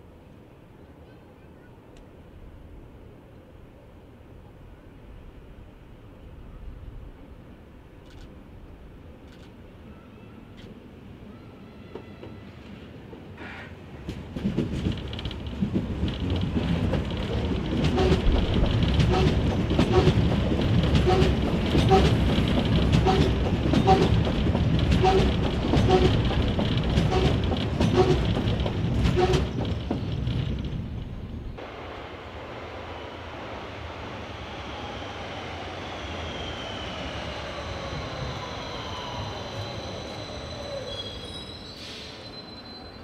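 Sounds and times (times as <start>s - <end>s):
train wheels clacking over rail joints: 13.4s - 31.2s
train running rumble: 13.9s - 40.4s.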